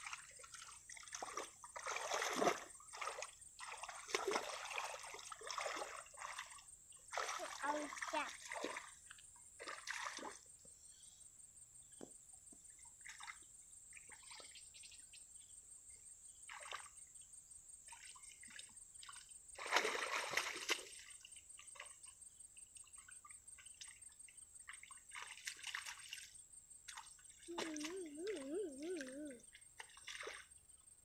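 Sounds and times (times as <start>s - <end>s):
hands splashing in muddy water: 0.0s - 8.9s, 18.1s - 21.2s, 24.7s - 26.3s.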